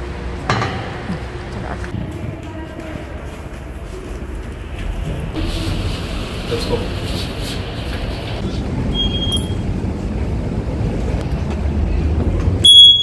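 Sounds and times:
low rumbling noise: 0.0 - 12.7
high electronic beep: 8.9 - 9.6, 12.6 - 13.0.

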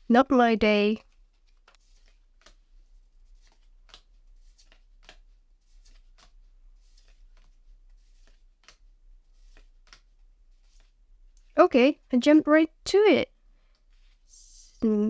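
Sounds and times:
cards swishing and ticking: 1.0 - 11.5.

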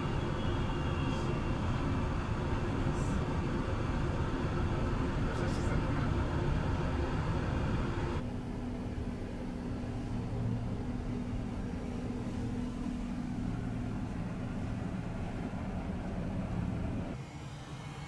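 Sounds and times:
train equipment hum and rumble: 0.0 - 17.2
steady low tone: 0.0 - 18.0.

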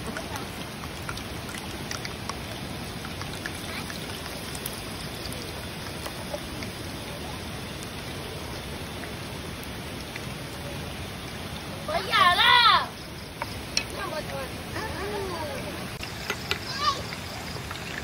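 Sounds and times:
hot oil sizzling: 0.0 - 18.0
small pops and crackles: 16.0 - 18.0.

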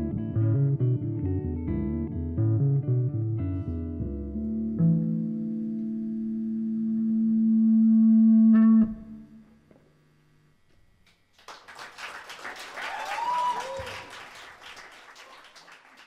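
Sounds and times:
audience applauding: 11.3 - 16.0.

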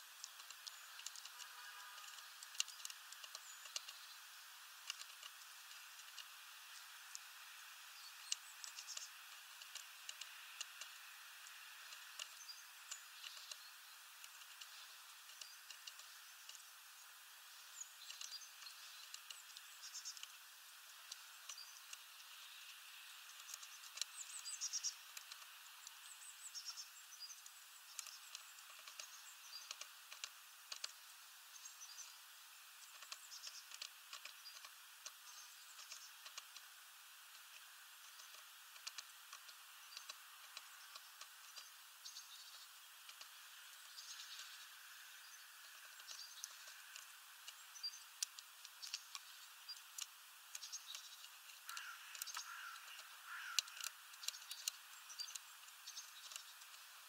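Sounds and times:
birds pecking at seeds: 0.0 - 57.0
low hiss: 0.0 - 57.0.

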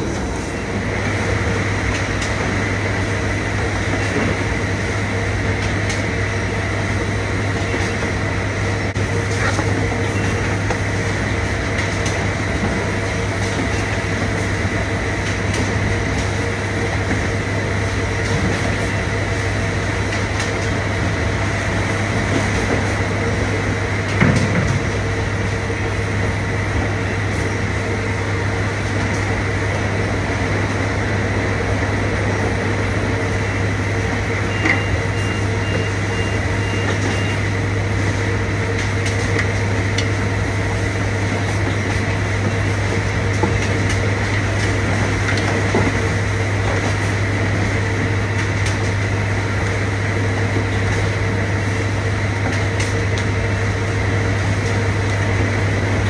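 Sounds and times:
conveyor and packing machinery din: 0.0 - 56.0
machine whining tones: 32.2 - 56.0.

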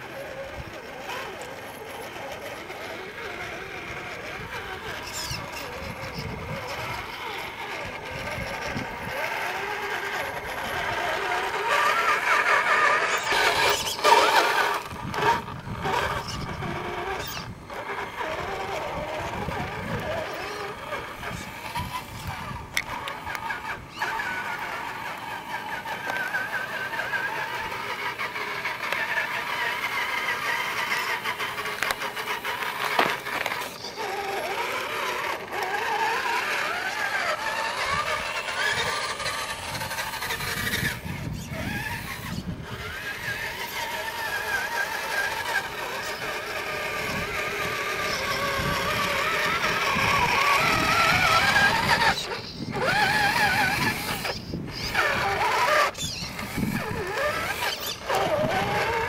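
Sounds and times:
electric motor whining: 0.0 - 59.0
tyres crunching on gravel: 29.5 - 40.7.

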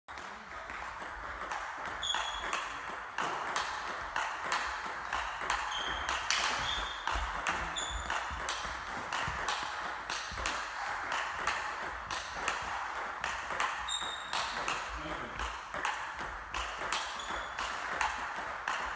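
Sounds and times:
table tennis ball clicking: 0.6 - 18.9
shoes squeaking on floor: 2.0 - 2.7, 5.5 - 9.4, 13.8 - 15.1, 17.0 - 17.8.

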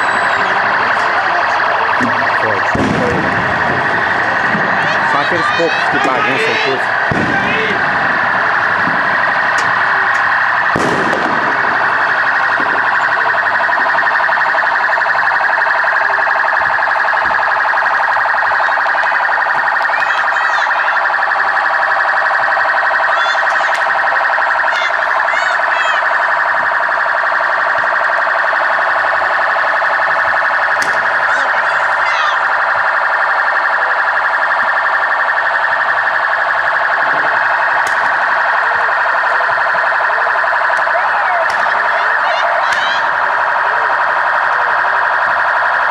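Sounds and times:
loud steady alarm tone: 0.0 - 45.9
sharp bang: 2.0 - 3.6, 10.7 - 11.7.

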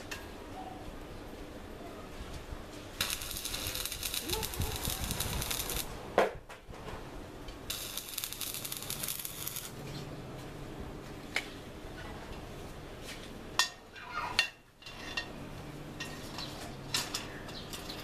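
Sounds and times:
welding arc crackling: 2.9 - 6.1, 7.6 - 9.8.

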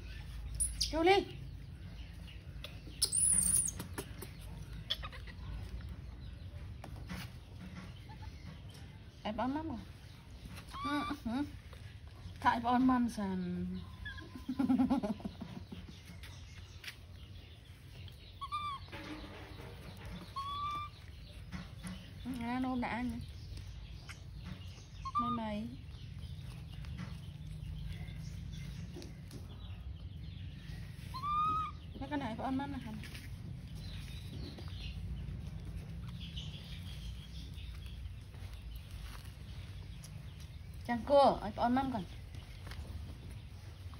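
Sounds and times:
baby monkey squeak: 0.0 - 1.1, 2.9 - 5.4, 18.4 - 19.0, 20.2 - 21.1, 25.0 - 25.8, 31.1 - 32.0
faint high animal calls: 18.4 - 18.9, 20.3 - 21.0, 31.1 - 31.8
steady low rumble: 31.8 - 43.9.

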